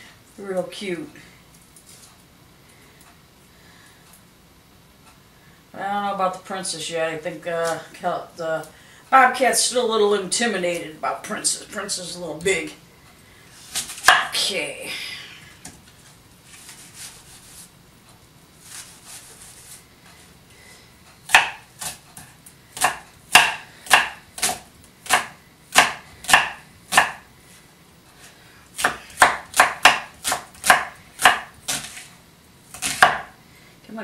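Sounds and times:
knife slicing onion: 13.6s - 14.4s, 18.6s - 19.8s, 21.2s - 27.3s, 28.7s - 32.1s, 32.7s - 33.4s
knife chopping on wooden board: 13.8s - 14.3s, 21.3s - 27.2s, 28.8s - 32.0s, 32.7s - 33.3s.

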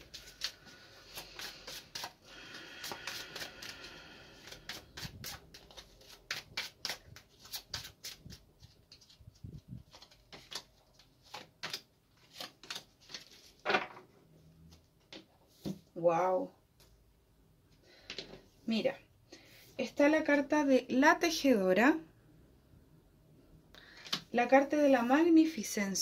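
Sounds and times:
cards being shuffled: 0.0s - 13.9s.

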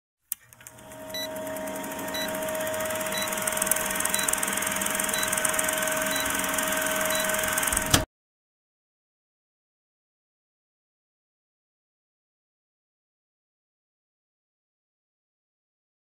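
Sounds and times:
film projector clatter: 0.4s - 8.1s.

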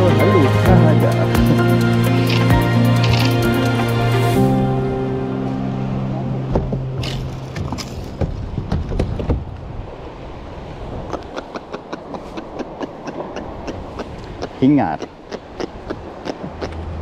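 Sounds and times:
background music: 0.0s - 8.5s
steady rushing noise: 0.6s - 17.0s.

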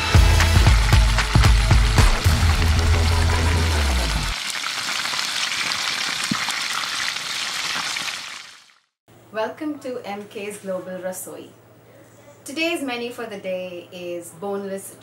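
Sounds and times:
deep bass music note: 0.0s - 4.3s
food sizzling in hot oil: 0.4s - 8.8s.

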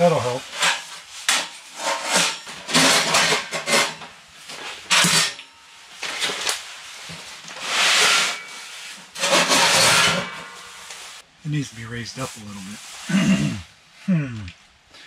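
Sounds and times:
metal scraping: 0.0s - 5.4s, 7.4s - 11.2s
sheet metal clanking: 9.2s - 10.8s.

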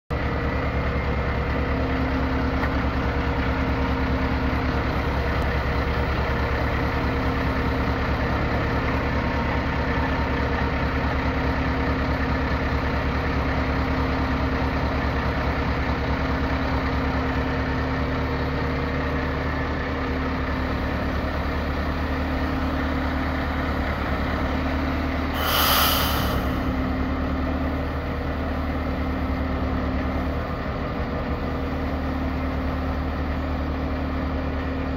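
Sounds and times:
short sharp hiss: 25.4s - 26.9s
crane hydraulic hum: 25.4s - 27.0s.

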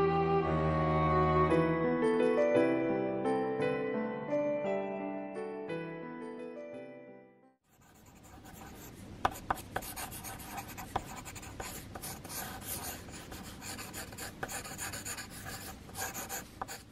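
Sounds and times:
pencil sketching on paper: 7.7s - 16.9s.

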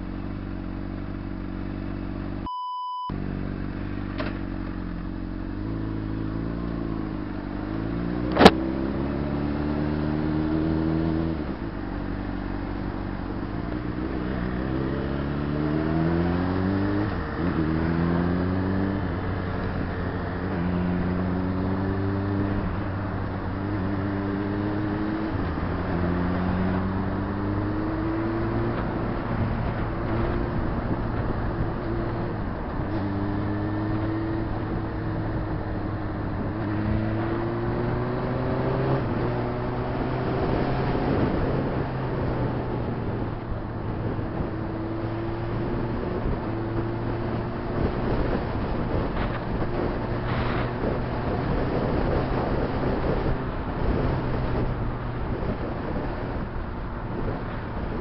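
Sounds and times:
short beep: 2.4s - 3.2s
motorcycle engine accelerating: 3.1s - 58.0s
sharp click: 8.3s - 8.6s.

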